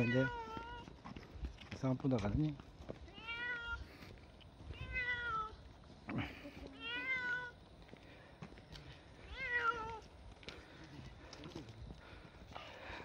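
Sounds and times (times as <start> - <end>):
cat meowing: 0.0 - 0.8, 3.1 - 3.8, 4.7 - 5.6, 6.8 - 7.5, 9.3 - 10.0.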